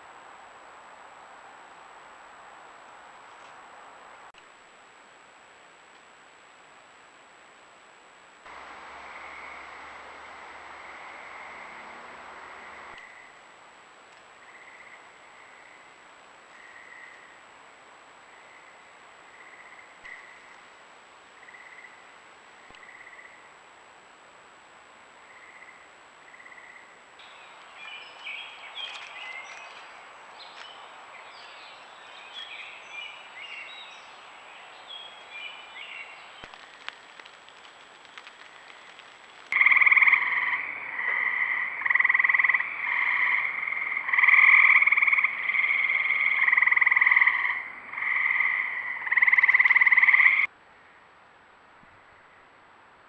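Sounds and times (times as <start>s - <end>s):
light hiss: 8.2s - 14.5s, 33.3s - 39.6s
frogs chirping: 8.5s - 13.4s, 14.4s - 17.4s, 18.3s - 20.6s, 21.4s - 22.1s, 25.2s - 29.6s, 38.0s - 50.5s
frog trills: 39.6s - 50.5s.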